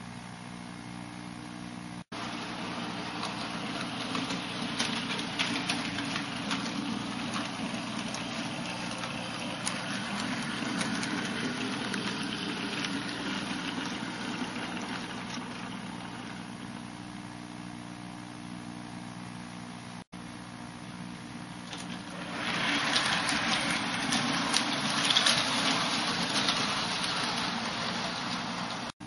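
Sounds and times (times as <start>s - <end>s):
wheels clicking over rail joints: 2.2s - 16.2s, 21.6s - 28.9s
model train motor hum: 2.2s - 16.4s, 21.6s - 28.9s.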